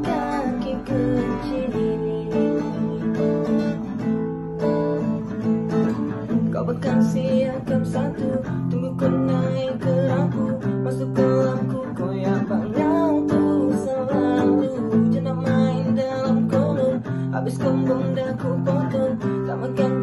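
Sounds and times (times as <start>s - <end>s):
person singing: 0.0s - 4.0s, 6.0s - 20.0s
acoustic guitar strumming: 0.0s - 20.0s.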